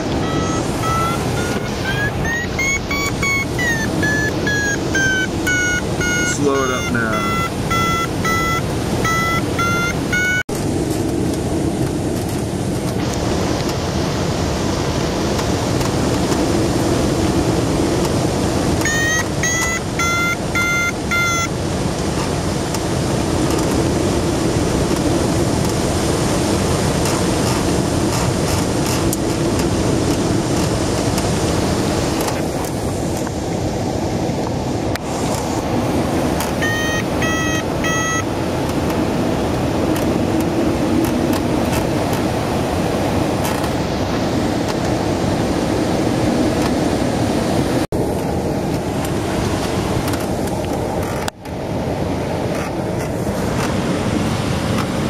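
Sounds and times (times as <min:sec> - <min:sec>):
variometer beeping rising tones: 0:00.0 - 0:10.5, 0:18.7 - 0:21.6, 0:36.4 - 0:38.8
rush of airflow: 0:10.5 - 0:18.8, 0:21.6 - 0:55.0.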